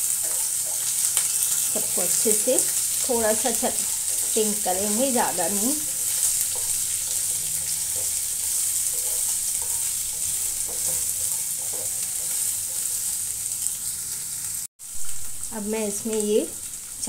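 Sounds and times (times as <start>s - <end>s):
spatula tapping and scraping pan: 0.0s - 13.2s
onion and spices sizzling in oil: 0.0s - 17.0s.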